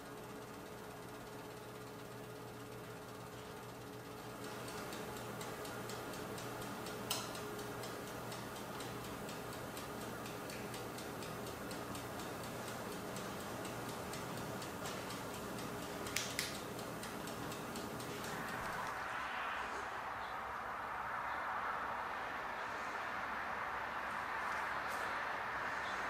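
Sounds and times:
mechanical timer ticking: 0:00.0 - 0:18.9
oven low hum: 0:00.0 - 0:21.0
sharp clicks: 0:04.3 - 0:19.0.

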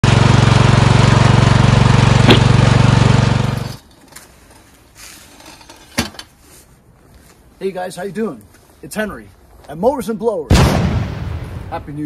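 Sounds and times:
riding lawn mower engine running: 0:00.0 - 0:04.1
faint outdoor background: 0:00.0 - 0:12.0.

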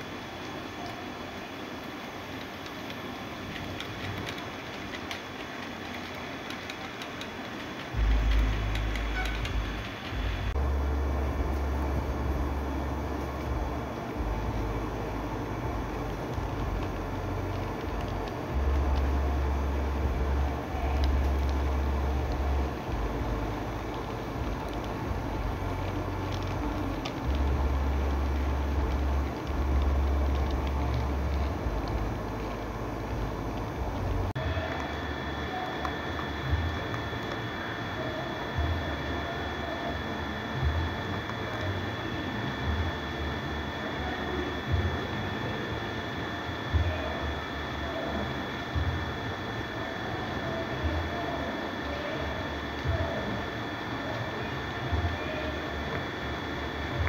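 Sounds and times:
model train wheels on rails: 0:00.0 - 0:10.6, 0:11.7 - 0:57.0
steady hiss: 0:00.0 - 0:57.0
model train wagons clicking over rails: 0:00.7 - 0:10.2
loud low rumble: 0:08.0 - 0:35.0.

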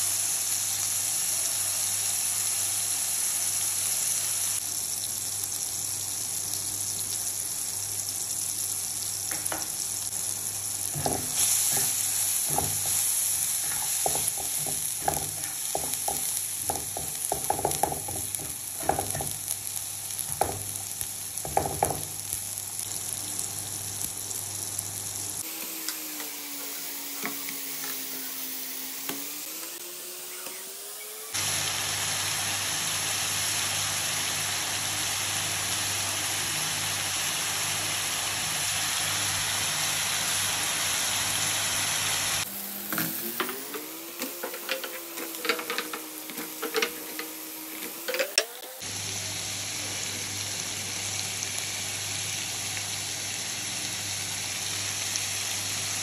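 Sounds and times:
vegetables sizzling in oil: 0:00.0 - 0:56.0
spoon scraping and tapping pan: 0:10.9 - 0:13.0, 0:13.6 - 0:19.4, 0:27.2 - 0:28.0, 0:42.9 - 0:48.6.

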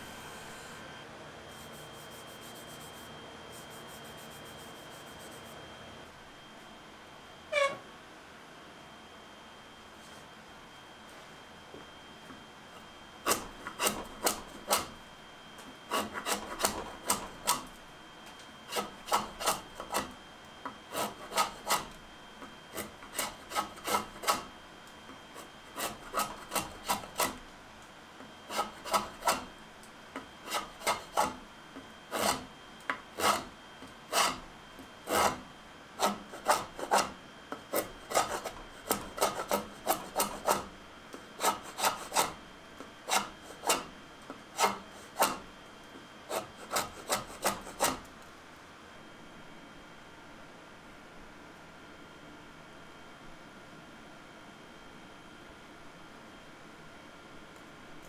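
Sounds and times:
drawknife scraping wood: 0:13.2 - 0:15.0, 0:15.9 - 0:17.7, 0:18.7 - 0:20.1, 0:20.9 - 0:22.0, 0:22.7 - 0:24.5, 0:25.4 - 0:27.4, 0:28.5 - 0:29.5, 0:30.4 - 0:31.4, 0:32.1 - 0:32.5, 0:33.1 - 0:33.5, 0:34.1 - 0:34.4, 0:35.0 - 0:35.4, 0:36.0 - 0:40.7, 0:41.4 - 0:42.4, 0:43.0 - 0:43.9, 0:44.6 - 0:45.4, 0:46.3 - 0:48.1.

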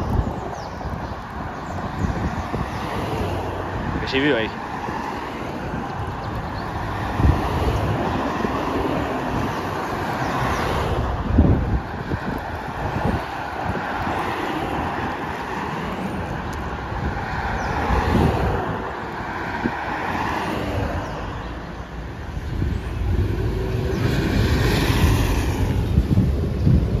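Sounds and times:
vehicles driving past: 0:00.0 - 0:27.0
wind buffeting microphone: 0:00.0 - 0:27.0
motorcycle passing: 0:22.2 - 0:27.0.

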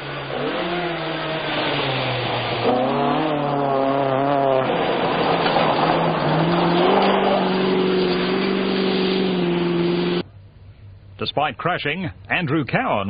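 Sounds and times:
gravel hissing under tyres: 0:00.0 - 0:10.2
rally car engine revving: 0:00.0 - 0:10.3.

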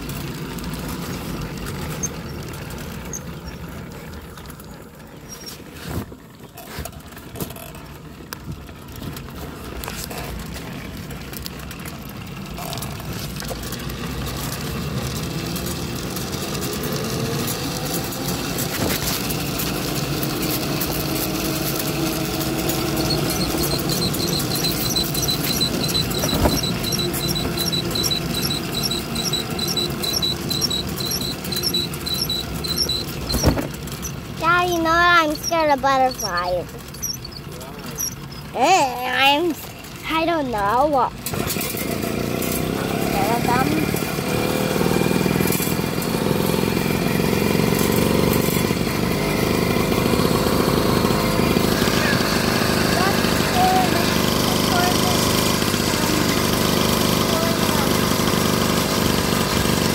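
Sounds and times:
bicycle trailer rumbling and rattling: 0:00.0 - 0:59.9
high repeating squeak: 0:22.2 - 0:34.2, 0:35.1 - 0:38.6.

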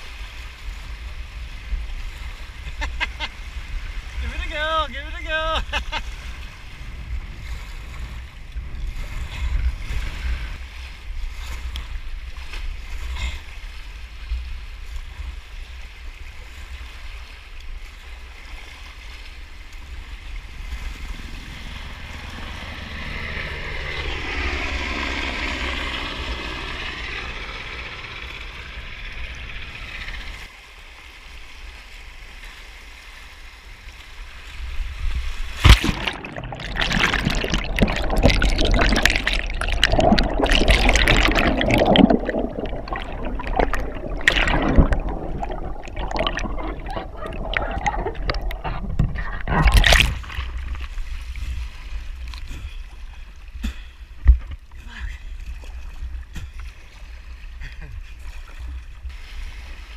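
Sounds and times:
wind rumbling on microphone: 0:00.0 - 0:30.5, 0:34.0 - 0:53.4
kayak splash: 0:30.9 - 0:53.5, 0:55.3 - 0:59.9
underwater bubbling and gurgling: 0:35.5 - 0:59.9
white water running: 0:35.6 - 0:50.9.

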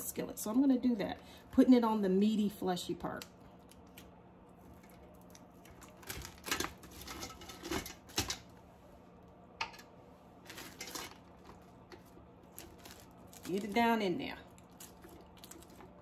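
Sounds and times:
plastic bag rustling: 0:04.6 - 0:08.4, 0:10.4 - 0:16.0.

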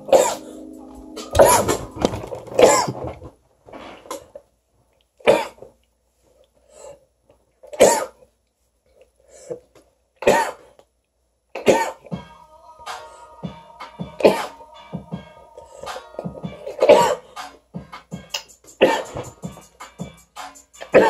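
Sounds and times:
man coughing: 0:00.0 - 0:00.6, 0:01.4 - 0:01.8, 0:11.6 - 0:12.1, 0:14.2 - 0:14.6, 0:16.6 - 0:17.3, 0:18.8 - 0:19.3.

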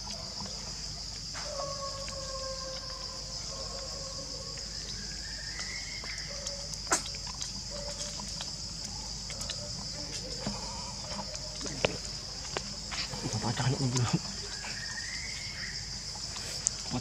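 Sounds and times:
faint held calls: 0:00.0 - 0:17.0
high-pitched insect drone: 0:09.8 - 0:17.0.

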